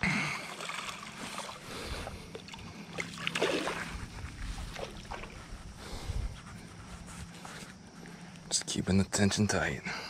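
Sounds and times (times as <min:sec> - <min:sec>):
river water splashing: 0:00.0 - 0:05.4.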